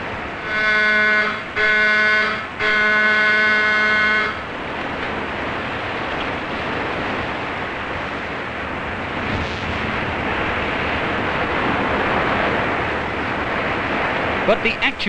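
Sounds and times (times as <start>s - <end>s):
wind noise on microphone: 0.0s - 14.9s
rough sea breaking: 0.0s - 15.0s
wind rushing: 4.5s - 14.5s.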